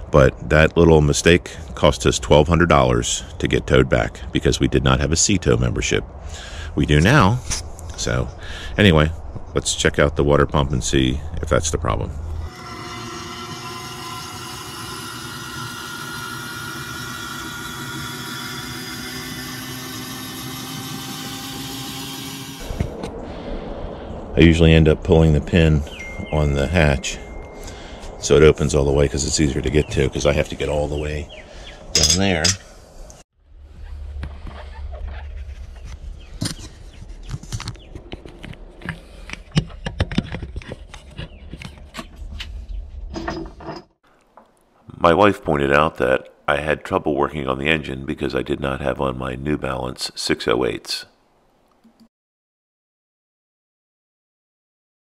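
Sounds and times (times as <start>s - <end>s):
electric hatch lift whirring: 12.5s - 23.0s
knocks and scuffs of climbing: 34.1s - 44.0s
camera handling rumble: 34.2s - 42.5s.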